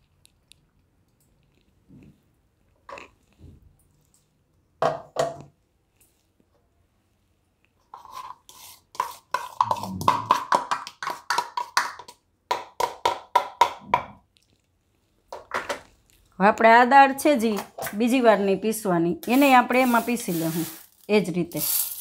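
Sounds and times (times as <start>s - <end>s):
jar knocking on steel bowl: 9.6s - 11.7s.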